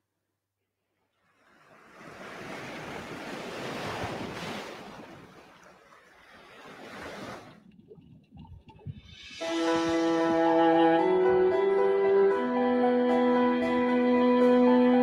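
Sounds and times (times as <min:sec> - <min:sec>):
sea waves surging: 0:01.2 - 0:14.7.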